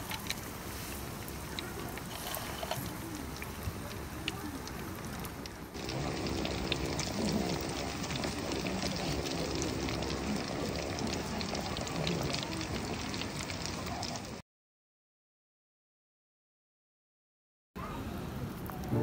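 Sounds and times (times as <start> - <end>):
food deep-frying in oil: 0.0 - 14.4.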